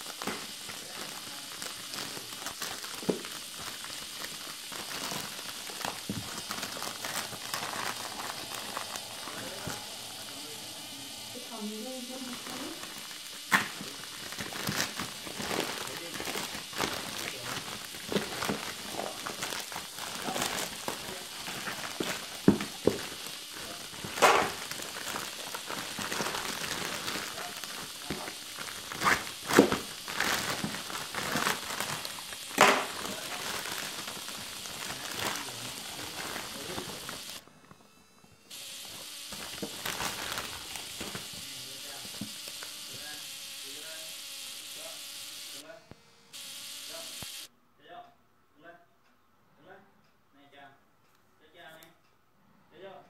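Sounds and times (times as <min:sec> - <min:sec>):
plastic ripping: 0:00.0 - 0:10.6, 0:11.2 - 0:37.4, 0:38.8 - 0:43.0
plastic wrapping crinkling: 0:00.0 - 0:37.4, 0:38.8 - 0:42.6.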